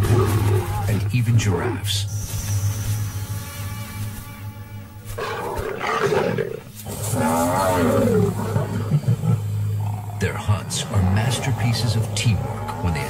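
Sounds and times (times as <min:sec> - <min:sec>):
lion roaring: 0:00.0 - 0:01.7, 0:05.2 - 0:13.0
low background music: 0:00.0 - 0:13.0.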